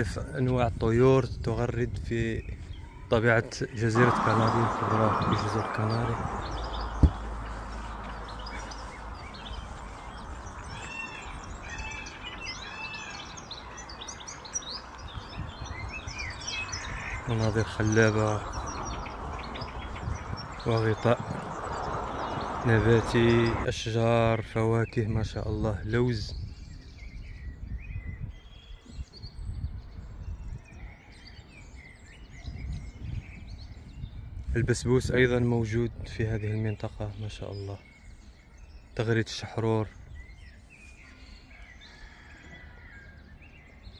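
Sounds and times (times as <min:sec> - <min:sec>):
songbirds chirping and singing: 0:00.0 - 0:43.9
whistled bird notes: 0:03.8 - 0:23.7, 0:39.8 - 0:43.9
low uneven rumble: 0:04.0 - 0:10.9
dull thump: 0:06.9 - 0:08.2.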